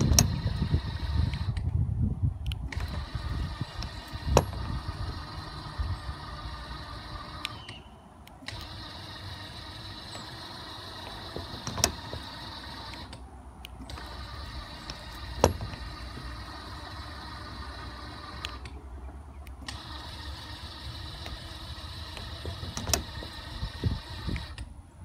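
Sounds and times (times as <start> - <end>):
sharp mechanical clicks: 0.0 - 1.8, 2.4 - 24.8
steady mechanical hum: 0.0 - 25.0.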